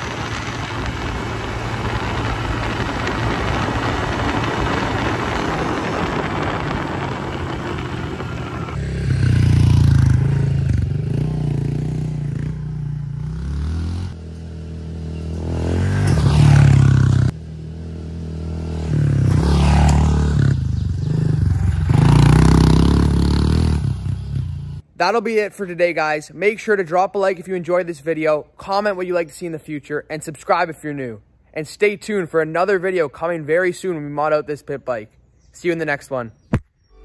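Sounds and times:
wind rush: 0.0 - 11.2
motorbike engine revving: 0.0 - 24.8.

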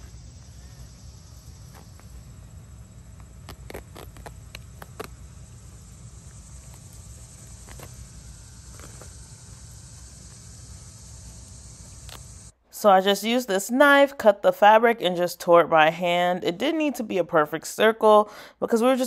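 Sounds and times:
insects hissing: 0.0 - 12.6.

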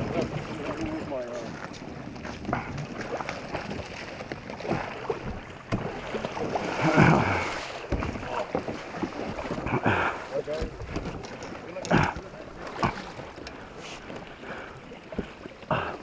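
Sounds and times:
rush of water: 0.0 - 16.0
water sloshing against hull: 0.0 - 16.0
short knocks on hull: 2.2 - 9.8, 10.4 - 13.3.

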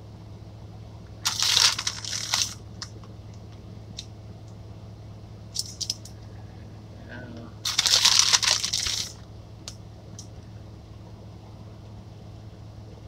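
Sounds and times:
steady low hum: 0.0 - 13.0
crinkling rustle: 1.2 - 3.5, 7.6 - 9.2.

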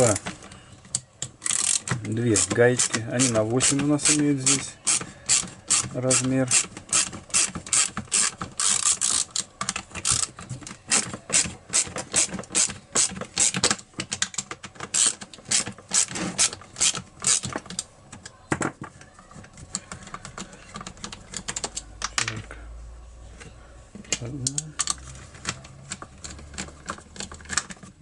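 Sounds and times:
ratchet wrench clicking: 1.4 - 10.3, 14.9 - 17.4.

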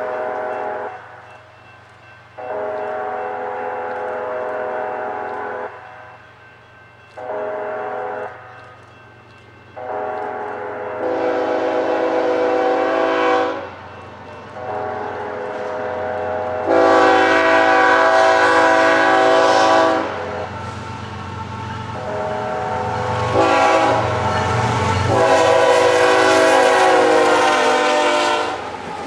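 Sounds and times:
locomotive air horn blasts: 0.0 - 1.0, 2.4 - 6.2, 7.2 - 8.5, 9.8 - 13.8, 14.6 - 20.8, 22.0 - 28.7.

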